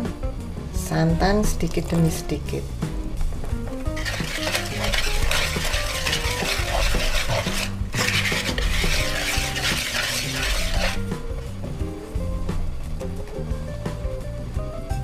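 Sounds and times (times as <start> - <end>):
whisk scraping in plastic bowl: 3.9 - 11.0.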